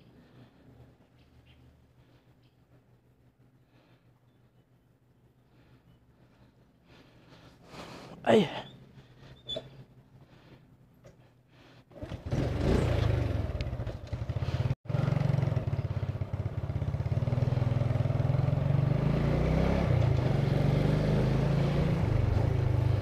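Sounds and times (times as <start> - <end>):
scooter engine: 11.9 - 23.0.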